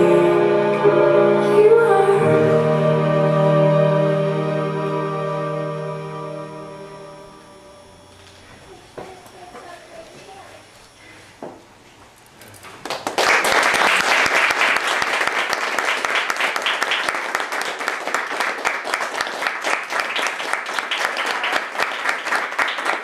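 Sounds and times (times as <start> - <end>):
audience applauding: 12.8 - 23.0.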